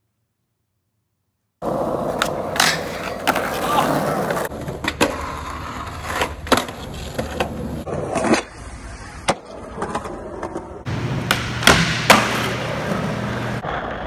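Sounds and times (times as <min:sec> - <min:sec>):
skateboard clacking on ground: 0:01.6 - 0:08.5
skateboard wheels rolling: 0:01.6 - 0:14.0.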